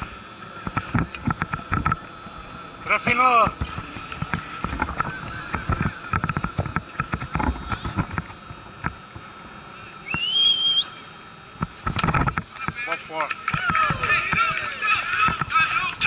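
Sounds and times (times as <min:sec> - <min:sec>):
person whistling rising note: 0:10.0 - 0:11.0.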